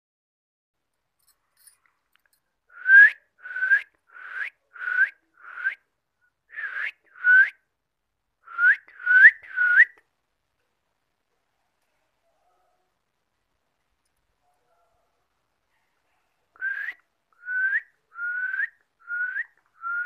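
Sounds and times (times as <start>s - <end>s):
rising whistles: 16.6s - 20.0s.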